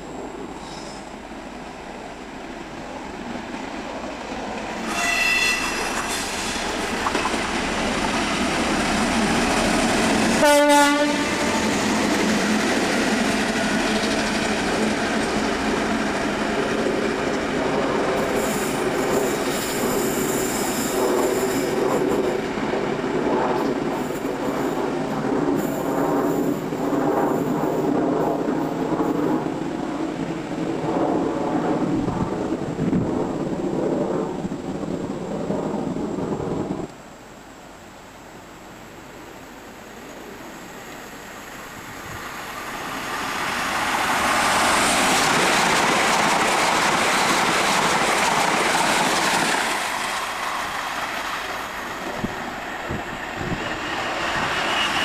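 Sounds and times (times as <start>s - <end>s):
diesel locomotive passing: 0.0s - 36.9s, 38.4s - 55.0s
train horn: 4.8s - 6.7s, 10.3s - 11.8s.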